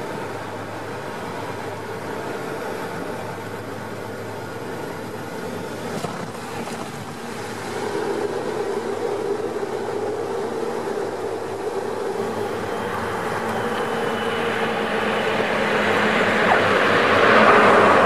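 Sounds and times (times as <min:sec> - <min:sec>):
propeller plane engines droning: 0:00.0 - 0:18.0.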